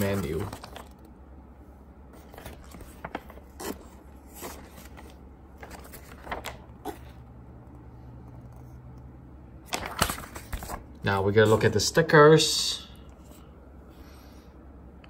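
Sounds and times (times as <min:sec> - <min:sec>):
paper pages turning: 0:00.0 - 0:01.1, 0:02.1 - 0:07.3, 0:09.6 - 0:11.9.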